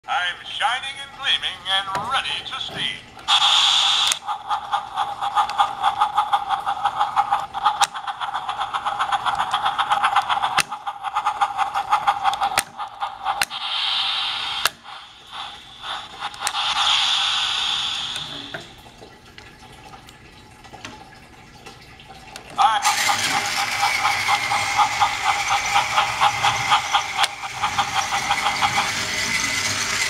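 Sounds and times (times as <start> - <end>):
toy train motor whine: 3.3 - 18.6, 22.8 - 30.0
hissing bursts: 3.3 - 18.7, 22.8 - 30.0
wheel clatter on plastic track: 5.1 - 13.5, 22.8 - 30.0.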